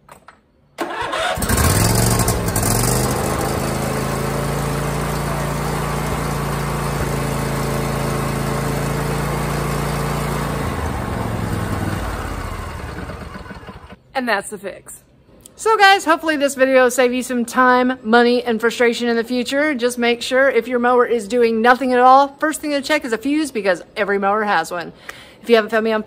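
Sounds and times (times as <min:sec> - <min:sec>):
engine cranking: 0:00.8 - 0:04.0, 0:10.6 - 0:14.0
mower engine running: 0:00.8 - 0:14.0.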